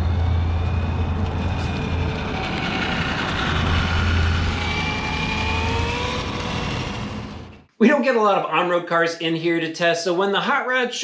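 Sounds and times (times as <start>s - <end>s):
steady low rumble: 0.0s - 7.7s
rc car electric motor whining: 0.5s - 7.5s.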